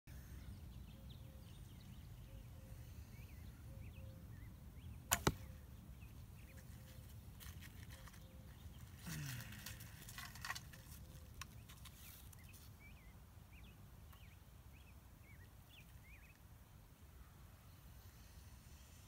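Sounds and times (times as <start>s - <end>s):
bowstring snapping: 5.1s - 5.6s.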